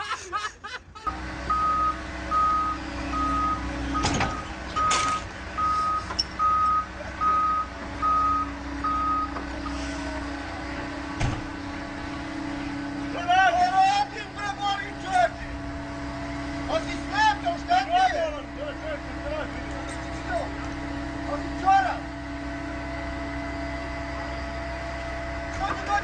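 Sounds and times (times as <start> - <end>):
diesel engine running: 0.0 - 26.0
reversing alarm beeping: 1.5 - 9.9.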